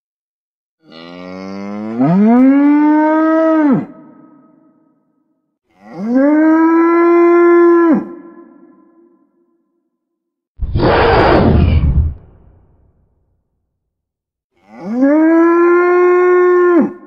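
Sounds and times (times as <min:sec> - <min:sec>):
creature calls: 0:10.6 - 0:11.8.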